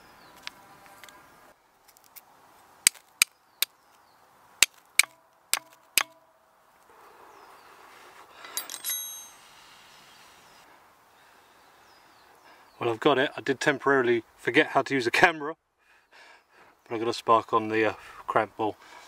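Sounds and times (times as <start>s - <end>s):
steel striking flint: 2.9s - 3.3s, 4.6s - 6.2s, 8.5s - 9.6s
metallic jingle: 8.5s - 9.6s.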